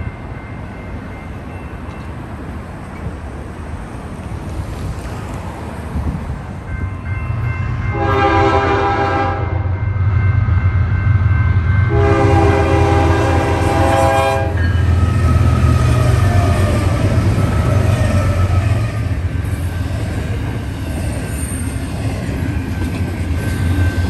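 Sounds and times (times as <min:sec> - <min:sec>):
train rolling past: 0:00.0 - 0:24.0
locomotive air horn blasts: 0:07.9 - 0:09.7, 0:11.9 - 0:15.2.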